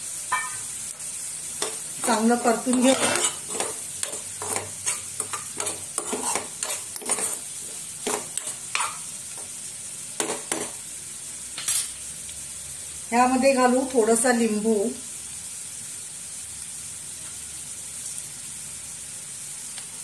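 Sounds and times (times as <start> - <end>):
frying sizzle: 0.0 - 20.0
spatula scraping a pan: 1.6 - 9.5, 10.2 - 10.8.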